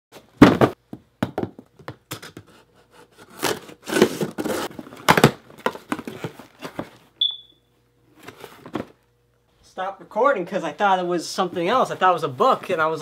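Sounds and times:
box thumping: 0.2 - 2.0, 3.5 - 7.0
knife slitting packing tape: 2.5 - 4.7.

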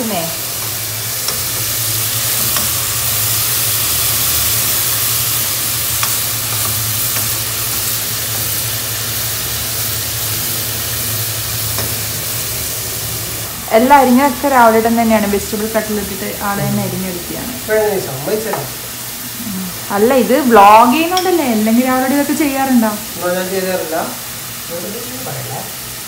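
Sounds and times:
onions sizzling in oil: 0.0 - 26.0
low steady hum: 11.5 - 24.3.

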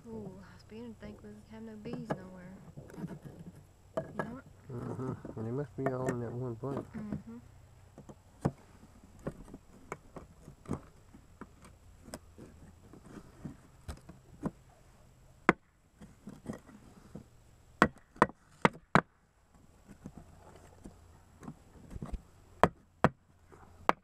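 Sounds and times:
taps and knocks on wooden slats: 17.8 - 19.1.

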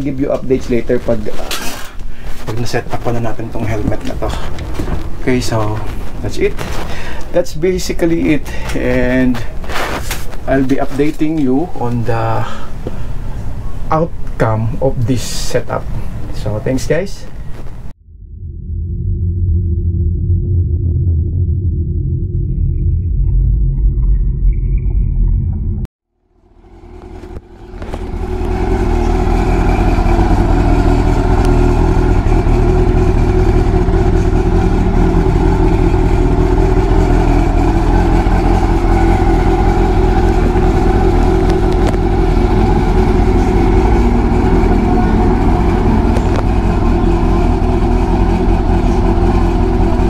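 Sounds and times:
motorcycle engine idling: 26.7 - 50.0.

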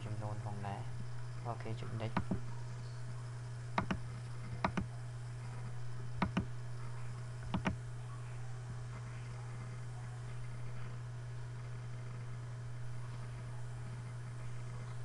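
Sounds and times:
low hum: 0.0 - 15.0
mouse button clicks: 7.5 - 7.8.

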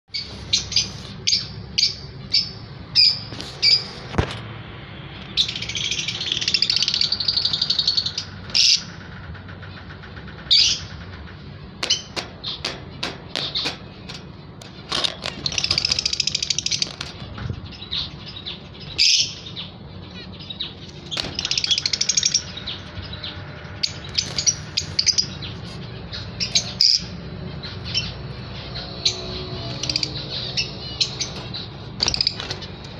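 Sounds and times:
rapid bird chattering: 5.4 - 23.2
steady low hum: 8.0 - 32.9
lovebirds chirping: 11.8 - 32.9.

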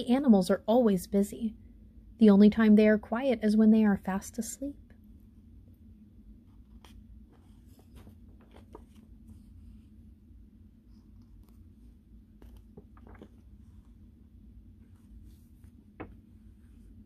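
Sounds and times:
low steady hum: 0.0 - 17.0
book pages rustling: 6.6 - 9.9, 10.9 - 14.1.

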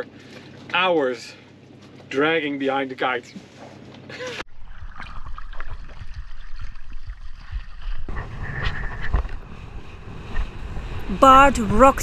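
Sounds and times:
water rushing and splashing: 5.0 - 12.0
wind rumbling on microphone: 5.6 - 12.0.

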